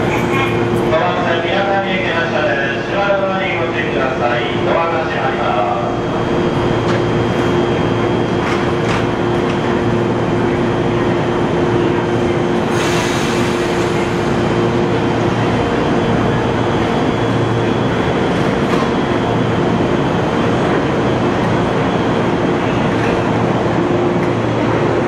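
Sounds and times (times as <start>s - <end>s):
electric train rolling: 0.0s - 25.0s.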